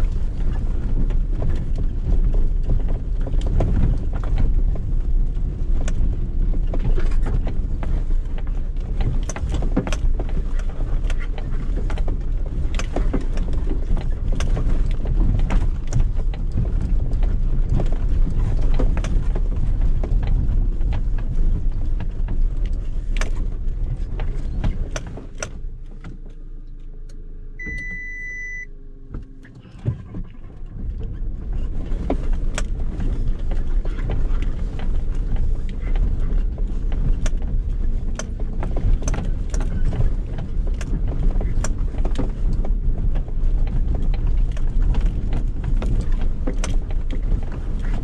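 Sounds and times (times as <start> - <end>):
body and interior rattles: 0.0 - 48.0
low engine hum: 0.0 - 48.0
short high beep: 27.6 - 28.7.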